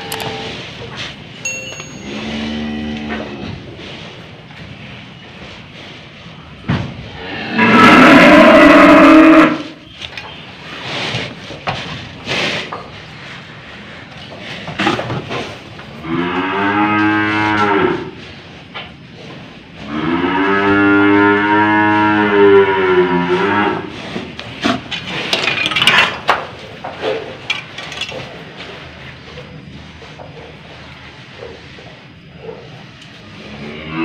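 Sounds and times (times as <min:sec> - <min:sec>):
cow mooing: 0:00.0 - 0:00.6, 0:02.1 - 0:03.6, 0:07.2 - 0:09.7
knocks and clatters: 0:24.6 - 0:28.4.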